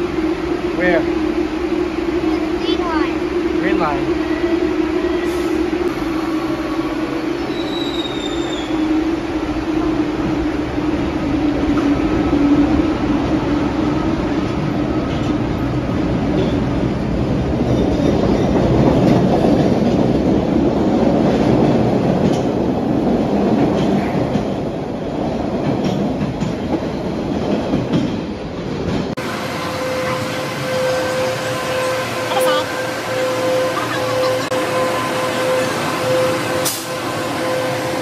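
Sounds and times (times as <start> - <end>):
subway train motor whine: 0.0 - 17.6, 29.2 - 38.0
wheels rumbling on rails: 0.0 - 38.0.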